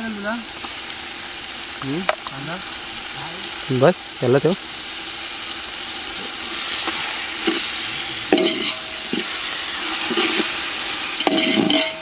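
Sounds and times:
onions sizzling in a pot: 0.0s - 12.0s
ladle scraping and knocking pot: 8.3s - 9.4s, 10.0s - 10.6s, 11.2s - 12.0s.

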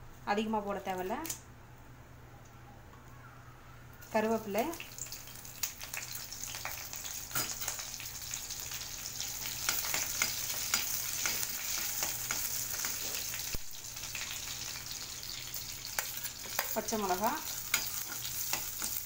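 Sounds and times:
seeds sizzling and popping in oil: 4.0s - 19.0s
spoon stirring in a pan: 15.9s - 19.0s.

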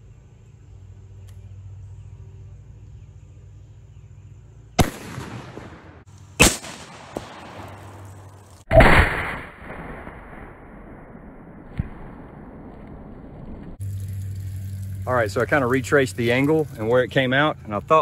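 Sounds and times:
steady low hum: 0.0s - 8.5s, 11.2s - 18.0s
rifle shots: 4.8s - 8.0s, 8.7s - 13.5s.

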